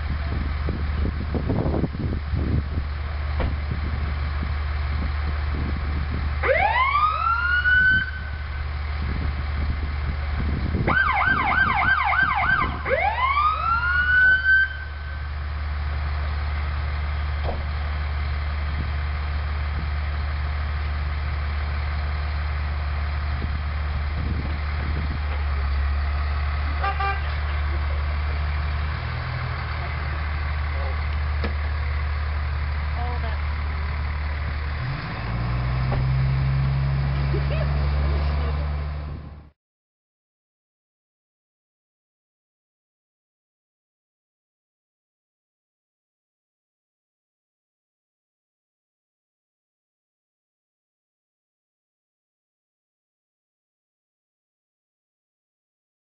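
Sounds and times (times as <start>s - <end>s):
low rumble: 0.0s - 6.4s, 14.8s - 39.5s
fire truck siren: 6.4s - 9.1s, 10.7s - 15.8s, 26.6s - 30.7s.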